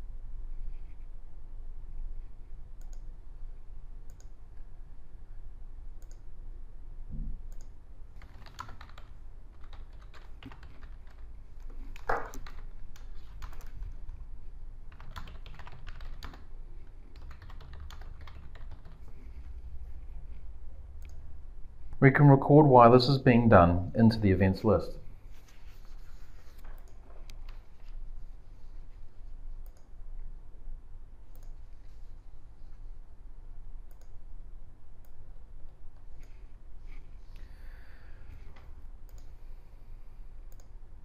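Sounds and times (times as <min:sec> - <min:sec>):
faint low hum: 0:00.0 - 0:41.0
typing on computer keyboard: 0:07.5 - 0:14.2, 0:14.9 - 0:16.5, 0:17.1 - 0:19.2.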